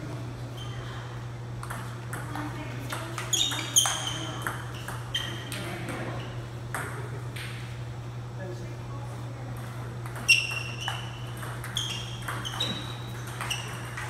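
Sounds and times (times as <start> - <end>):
steady low hum: 0.0 - 14.0
table tennis ball hits: 1.6 - 6.0, 9.6 - 14.0.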